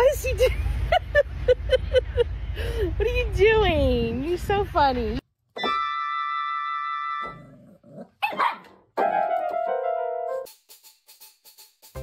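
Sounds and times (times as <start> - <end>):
puppy barking: 8.1 - 9.1.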